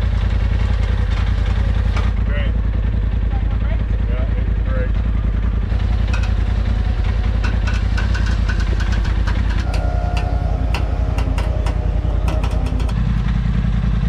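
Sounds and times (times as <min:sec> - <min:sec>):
vehicle engine idling: 0:00.0 - 0:14.0
light clicks and knocks: 0:07.4 - 0:13.0.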